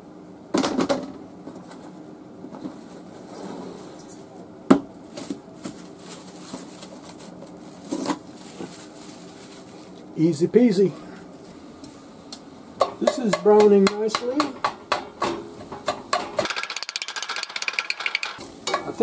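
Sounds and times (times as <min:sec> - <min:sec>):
plastic food wrap crinkling: 0:05.1 - 0:10.1.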